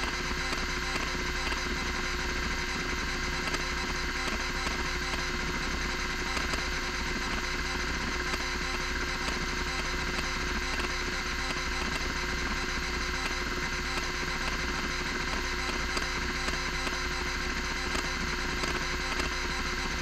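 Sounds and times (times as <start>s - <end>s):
hard drive spindle whine: 0.0s - 20.0s
stepper motor ticking: 0.0s - 20.0s.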